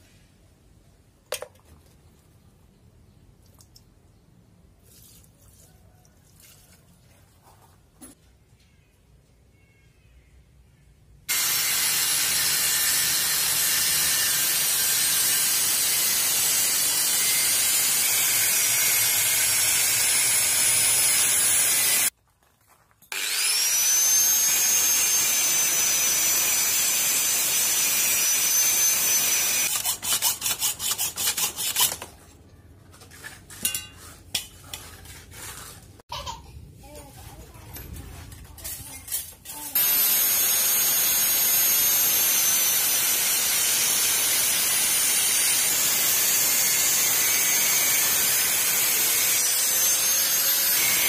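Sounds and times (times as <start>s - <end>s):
angle grinder cutting metal: 11.3s - 22.1s, 23.1s - 32.1s, 39.5s - 51.0s.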